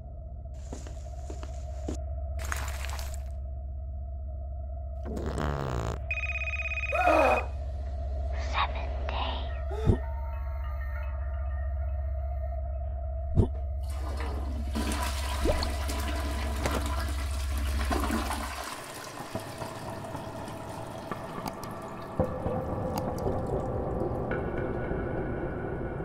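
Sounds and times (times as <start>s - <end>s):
low hum: 0.0s - 18.4s
toilet water rushing: 13.9s - 24.1s.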